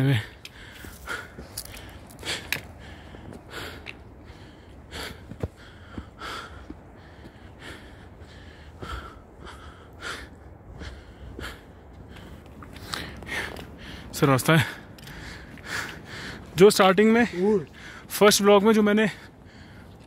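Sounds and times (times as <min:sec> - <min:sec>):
person breathing hard: 0:00.2 - 0:16.6, 0:17.7 - 0:18.1, 0:19.2 - 0:20.0.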